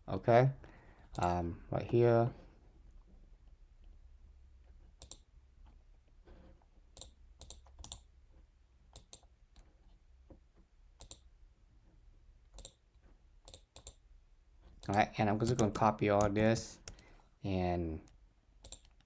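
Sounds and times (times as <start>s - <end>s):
faint low room hum: 0.0s - 19.0s
computer mouse clicks: 5.0s - 5.8s, 6.9s - 8.1s, 8.9s - 9.7s, 11.0s - 11.3s, 12.5s - 12.8s, 13.4s - 14.0s, 14.6s - 17.1s, 18.0s - 19.0s.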